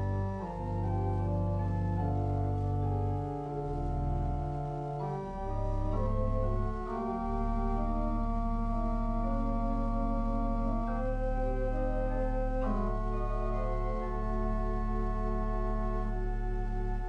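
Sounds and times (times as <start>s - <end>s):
organ playing sustained chords: 0.0s - 17.0s.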